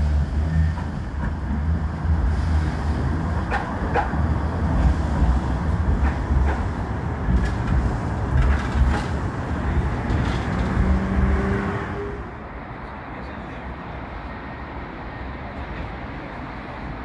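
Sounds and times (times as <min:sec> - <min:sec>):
tram rumble: 0:00.0 - 0:17.0
wheel clicks on rails: 0:05.8 - 0:10.9.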